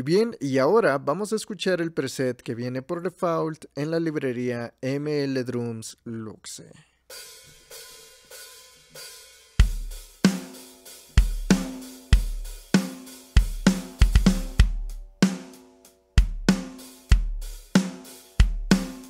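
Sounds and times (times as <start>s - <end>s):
drum kit beat: 7.1s - 19.0s.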